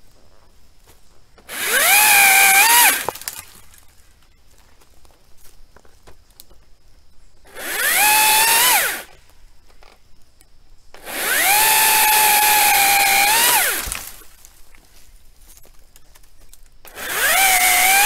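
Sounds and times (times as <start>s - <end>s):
electric pole saw whining: 1.5s - 3.6s, 7.5s - 9.2s, 11.0s - 14.2s, 16.9s - 18.0s
saw chain cutting wood: 1.5s - 3.7s, 7.5s - 9.2s, 11.0s - 14.2s, 16.9s - 18.0s.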